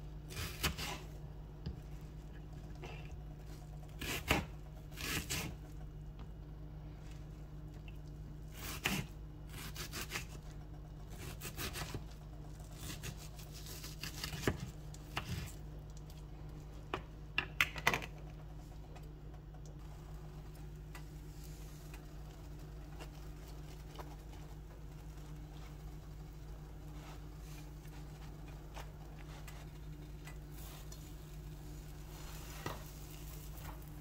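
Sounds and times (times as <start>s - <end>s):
knife slicing onion: 0.3s - 1.2s, 3.9s - 5.6s, 8.5s - 10.4s, 11.1s - 15.6s.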